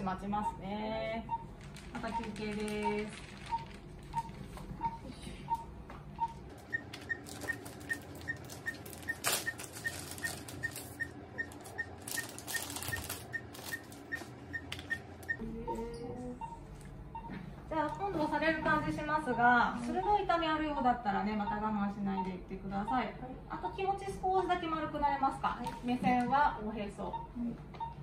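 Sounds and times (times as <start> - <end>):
patient monitor beeping: 0.0 - 28.0
plastic wrapping rustling: 7.0 - 14.9.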